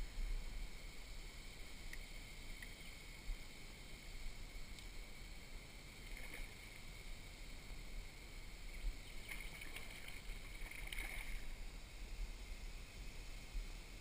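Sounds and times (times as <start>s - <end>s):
low steady rumble: 0.0s - 14.0s
fish splashing in water: 9.1s - 11.6s.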